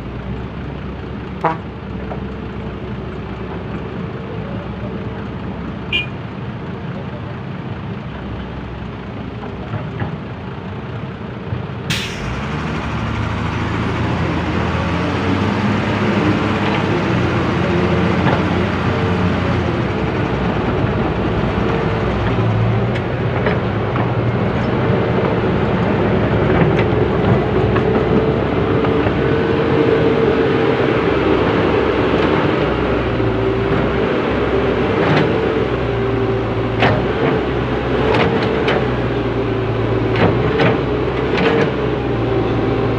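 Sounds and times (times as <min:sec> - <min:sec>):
diesel engines under load: 0:00.0 - 0:42.9.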